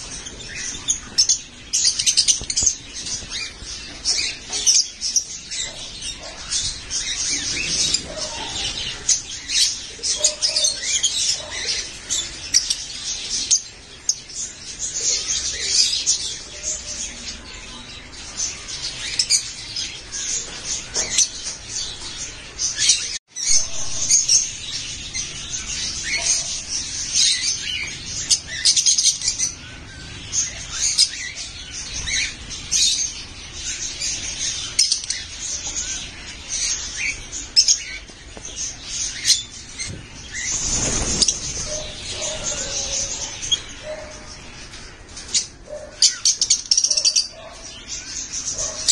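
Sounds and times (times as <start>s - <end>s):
birds chirping and squeaking: 0.0s - 48.9s.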